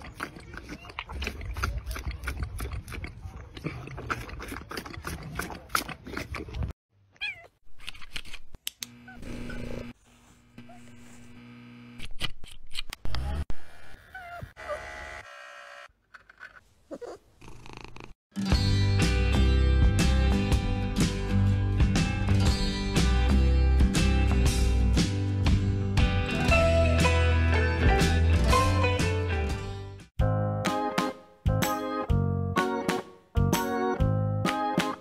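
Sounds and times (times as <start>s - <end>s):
animal slurping from bottle: 0.0s - 6.7s
cat meowing: 7.2s - 7.5s.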